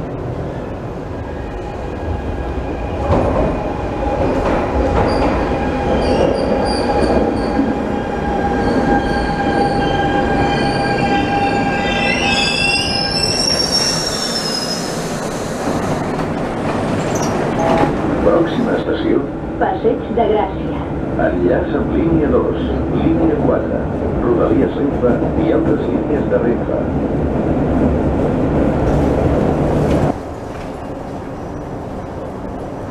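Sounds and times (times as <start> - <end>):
train rumble and whine: 0.0 - 32.9
wheels and brakes squealing: 8.5 - 15.1, 17.0 - 17.8.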